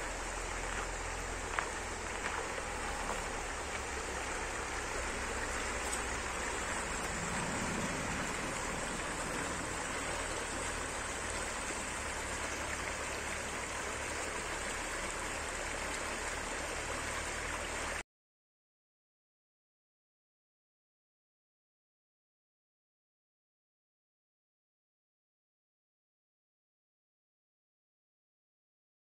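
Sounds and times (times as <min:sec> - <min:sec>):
river rippling over stones: 0:00.0 - 0:18.0.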